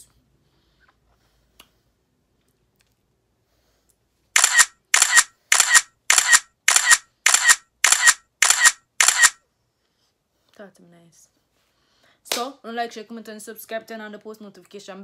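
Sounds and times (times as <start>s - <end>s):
camera shutter double clicks: 4.4s - 9.4s.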